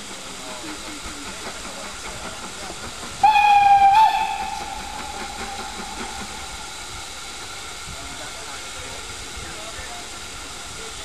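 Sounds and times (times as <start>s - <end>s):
steady hiss: 0.0s - 11.0s
steam locomotive whistle: 3.2s - 6.9s.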